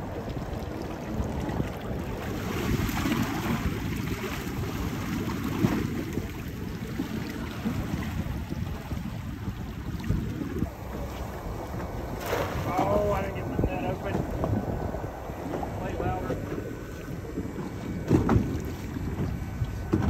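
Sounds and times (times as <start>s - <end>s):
small waves washing: 0.0s - 20.0s
wind buffeting microphone: 0.0s - 20.0s.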